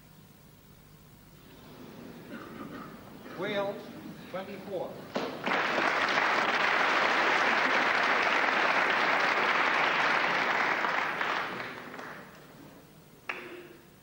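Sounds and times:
audience applauding: 5.1 - 13.6.

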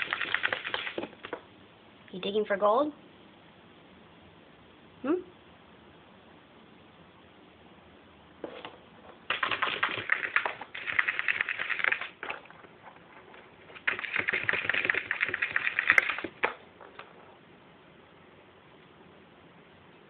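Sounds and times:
rabbit claws scratching plastic: 0.0 - 1.4, 8.4 - 17.3.

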